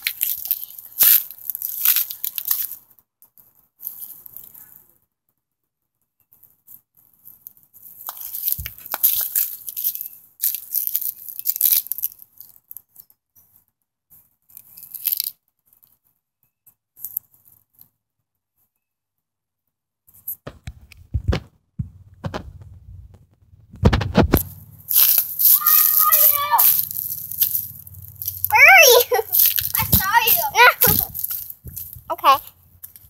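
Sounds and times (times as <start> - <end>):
rustling and crunching: 0.0 - 5.0, 6.2 - 18.0, 20.1 - 33.0.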